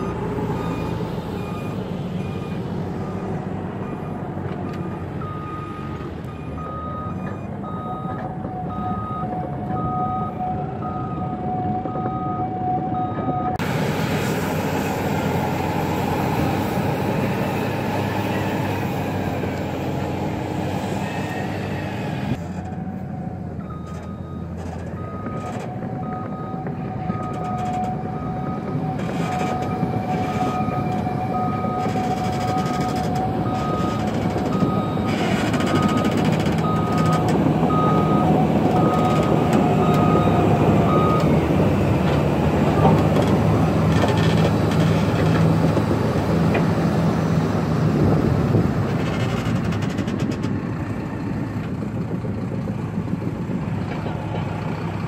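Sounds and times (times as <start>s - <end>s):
reversing alarm beeping: 0.0s - 13.6s, 22.7s - 41.5s
heavy diesel machinery running: 0.0s - 55.0s.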